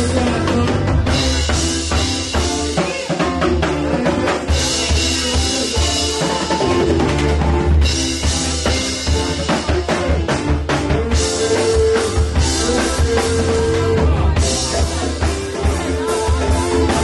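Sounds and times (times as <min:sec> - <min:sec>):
drum kit: 0:00.0 - 0:17.0.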